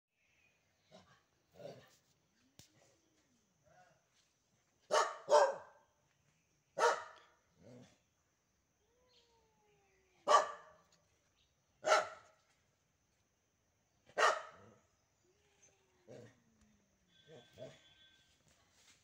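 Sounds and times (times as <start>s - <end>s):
dog barking: 4.9s - 5.8s, 6.8s - 7.3s, 10.3s - 10.8s, 11.8s - 12.3s, 14.1s - 14.8s, 17.3s - 17.9s.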